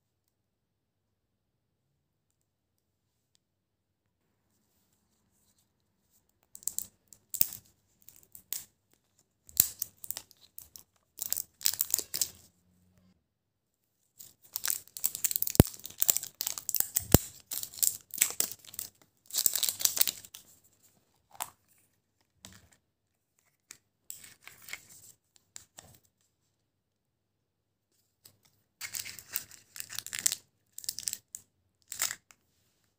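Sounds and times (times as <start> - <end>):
plastic wrapper crinkling: 9.5 - 12.5, 14.3 - 20.4, 28.8 - 32.2.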